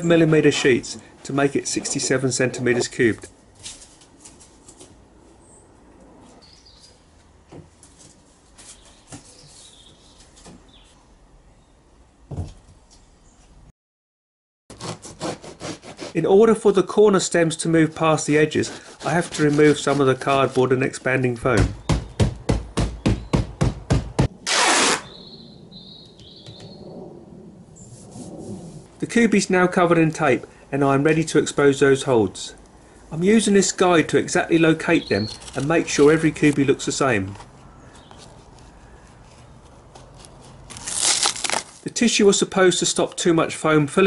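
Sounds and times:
hammer striking cardboard box: 21.6 - 24.3
cardboard sheets being handled: 38.1 - 41.9.

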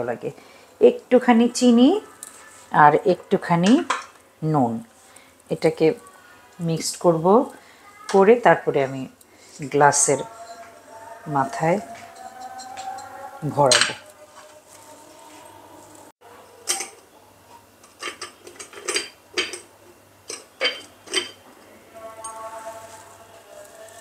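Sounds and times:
glass rim clinking on plate: 10.2 - 10.7, 11.8 - 14.1, 20.3 - 21.4, 22.2 - 22.6.

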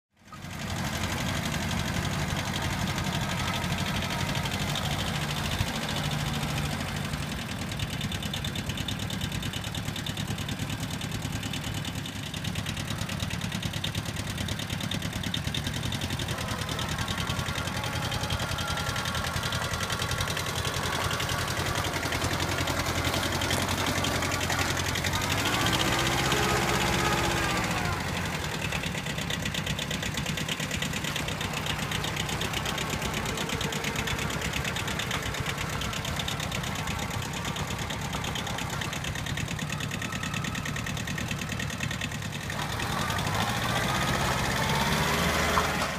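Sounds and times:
tractor diesel engine running: 0.1 - 45.9.

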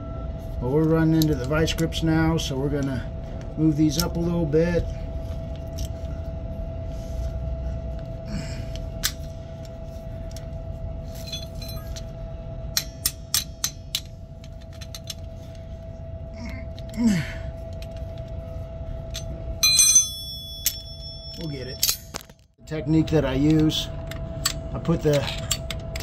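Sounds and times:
steady hum: 0.0 - 26.0
ringing metal clink: 19.1 - 22.2.

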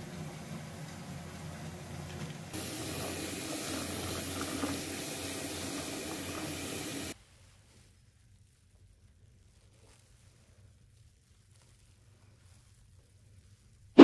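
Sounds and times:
bath tap running into tub: 0.0 - 7.2
quiet hiss with low hum: 0.0 - 14.0.

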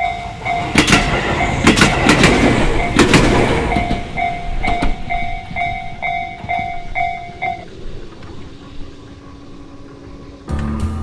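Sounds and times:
train wheel clacks: 0.0 - 10.5
train rumbling: 0.0 - 11.0
level crossing bell ringing: 3.8 - 7.6.

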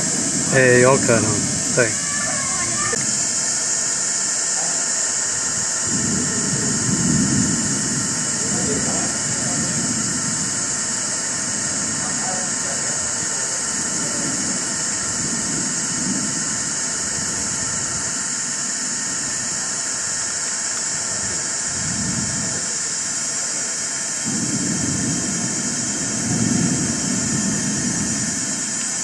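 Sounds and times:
low muffled rumbles: 0.0 - 18.3, 24.1 - 28.5
loud high-pitched hiss: 0.0 - 29.0.

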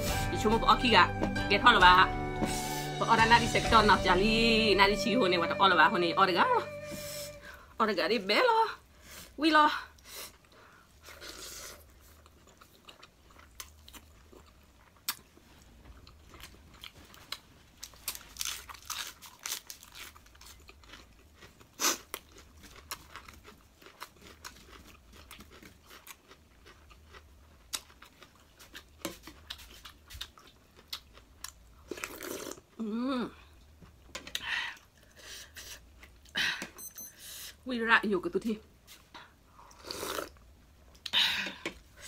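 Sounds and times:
person chewing noodles: 9.9 - 36.4, 38.9 - 42.0.

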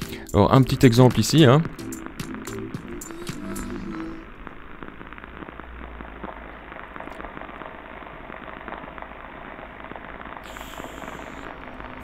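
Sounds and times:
dense crackle of small impacts: 0.9 - 12.0
low hum: 1.6 - 6.9.

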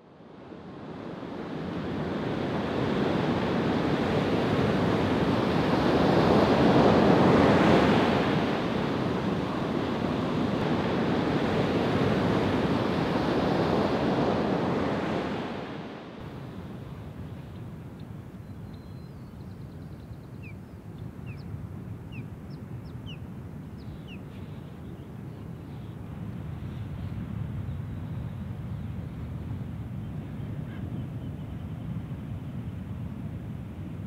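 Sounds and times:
ocean surf rushing: 1.0 - 17.2.

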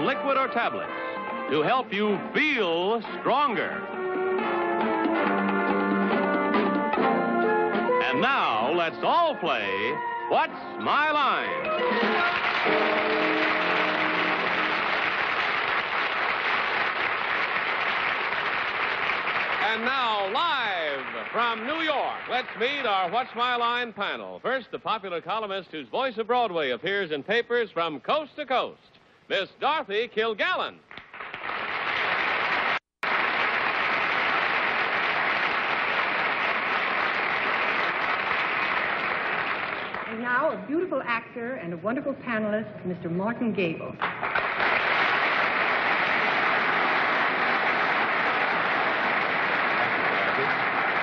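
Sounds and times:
theme music: 0.0 - 16.2
audience applauding: 11.8 - 23.9, 30.9 - 40.2, 44.0 - 51.0.

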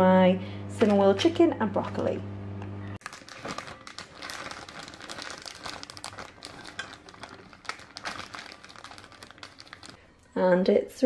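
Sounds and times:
plastic bag crinkling: 3.0 - 10.0.

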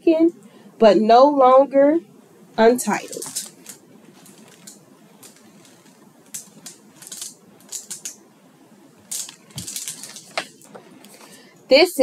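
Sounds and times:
book pages turning: 3.0 - 8.2, 9.0 - 11.4.

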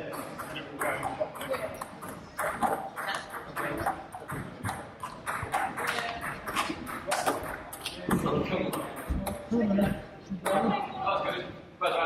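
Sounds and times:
table tennis balls clicking: 0.0 - 9.5.

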